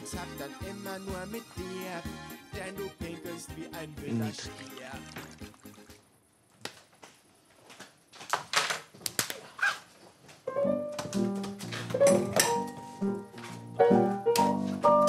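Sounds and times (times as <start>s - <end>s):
piano chords: 10.5s - 15.0s.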